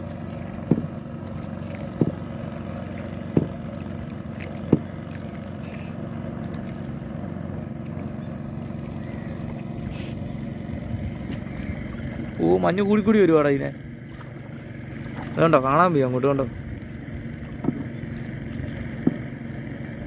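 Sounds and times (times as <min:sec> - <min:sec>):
boat engine humming: 0:00.0 - 0:20.0
sharp knocks: 0:00.6 - 0:00.9, 0:02.0 - 0:02.2, 0:19.0 - 0:19.3.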